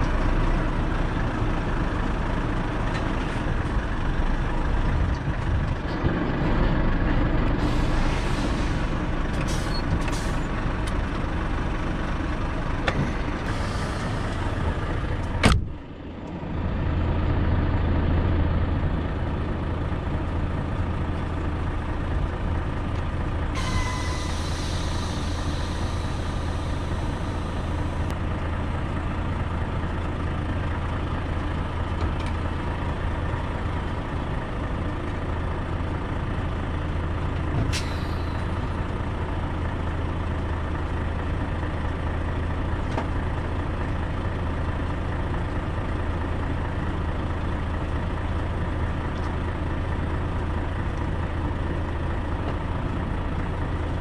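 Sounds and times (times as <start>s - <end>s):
heavy truck engine drone: 0.0s - 54.0s
hiss: 23.6s - 27.6s.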